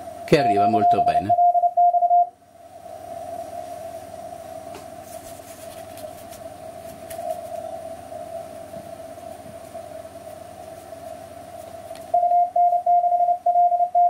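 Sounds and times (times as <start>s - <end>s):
receiver hiss: 0.0s - 5.3s
steady radio tone: 0.2s - 2.3s.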